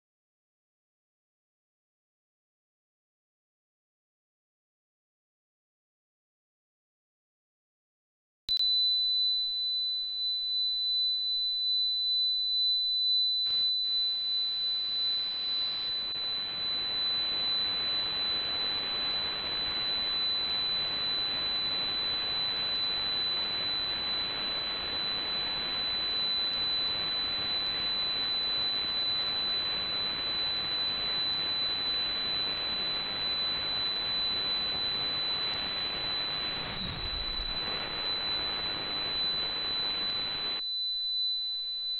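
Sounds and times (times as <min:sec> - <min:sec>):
high-pitched radio tone: 0:13.5 - 0:41.9
radio hiss: 0:35.4 - 0:40.6.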